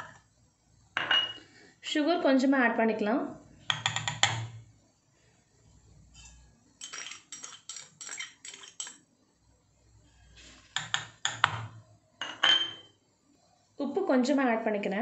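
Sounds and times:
metal spoon clinking on glass: 1.0s - 1.4s, 6.2s - 9.0s, 12.2s - 12.9s.

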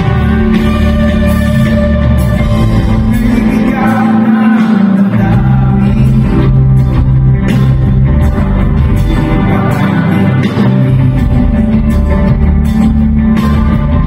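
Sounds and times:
electric guitars: 0.0s - 14.0s
keyboard: 0.0s - 14.0s
live pop-rock band playing: 0.0s - 14.0s
person singing: 2.4s - 7.1s, 7.8s - 14.0s.

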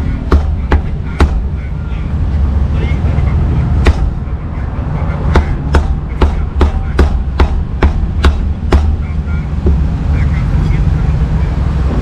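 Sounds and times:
steady low rumble: 0.0s - 12.0s
cleaver chopping on wooden block: 5.4s - 9.0s.

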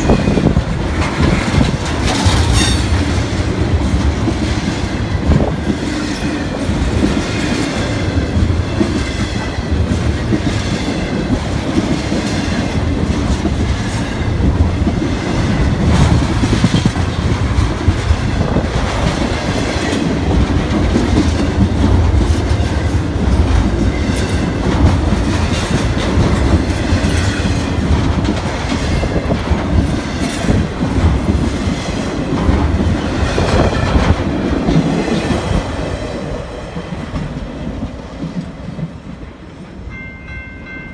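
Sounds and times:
wheels clicking over rail joints: 0.0s - 38.9s
freight train wheels rumbling: 0.0s - 40.9s.

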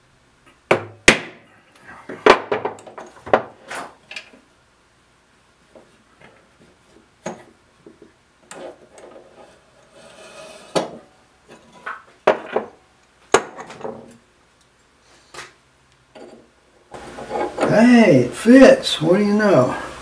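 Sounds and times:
wood and metal knocks: 0.7s - 1.4s, 2.2s - 3.6s, 11.8s - 14.0s
short scrapes: 9.3s - 10.8s.

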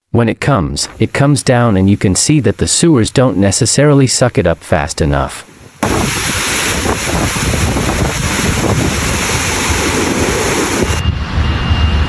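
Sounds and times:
floodwater rushing and splashing: 5.2s - 11.0s
wind buffeting microphone: 5.6s - 12.0s.

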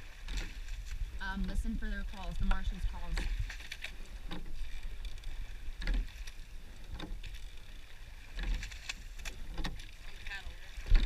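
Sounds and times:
oars knocking in oarlocks: 0.0s - 1.5s, 2.2s - 11.0s
wind rumble on microphone: 0.0s - 6.2s
oar blades splashing water: 0.0s - 11.0s.

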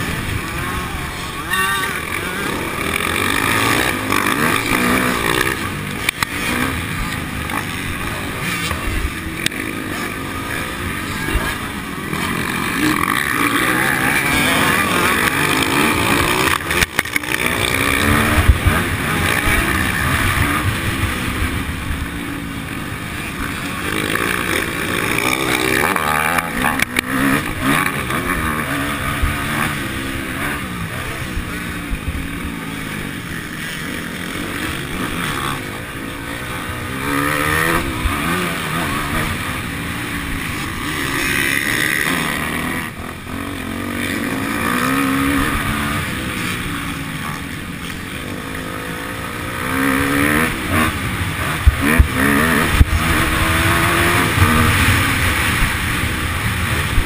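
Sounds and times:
motocross bike engine revving: 0.0s - 57.0s.

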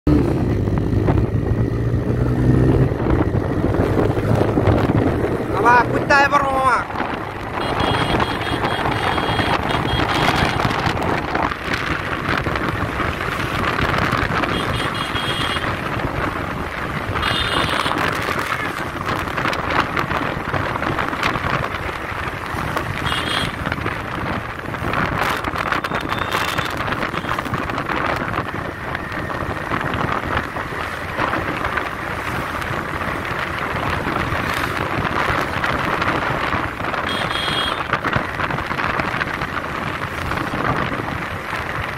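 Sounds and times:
wind buffeting microphone: 0.1s - 41.9s
motorcycle engine running: 6.8s - 41.9s.

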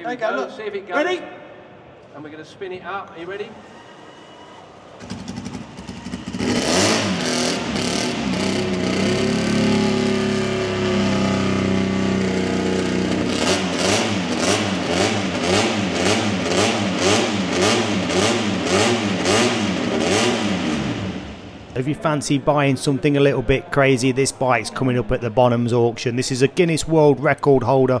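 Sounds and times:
motorcycle engine revving: 5.0s - 21.7s.

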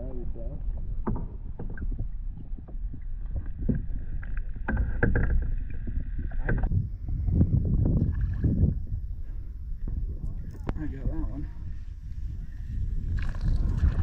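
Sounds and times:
water splashing and sloshing: 0.0s - 14.0s
knocks and taps on kayak: 4.6s - 5.5s, 6.3s - 6.7s.

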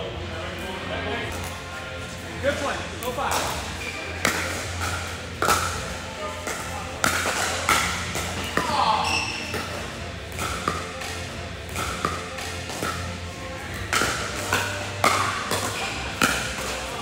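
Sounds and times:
background music: 0.0s - 17.0s
paddles hitting ball pops: 4.2s - 8.8s, 9.5s - 17.0s.

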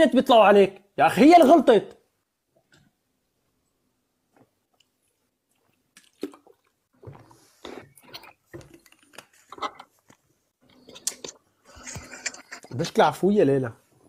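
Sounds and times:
water sloshing in bottle: 5.5s - 9.9s
plastic bottle crinkling: 6.0s - 10.2s.

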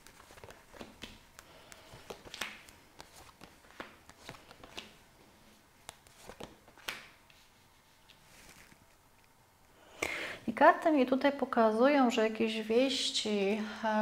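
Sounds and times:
cards clicking and sliding: 0.0s - 5.0s, 5.8s - 7.4s.

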